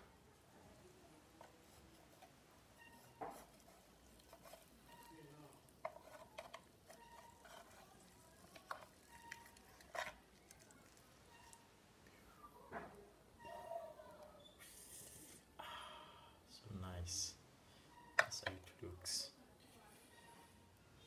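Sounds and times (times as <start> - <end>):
wooden spatula scraping nonstick plate: 1.4 - 10.6.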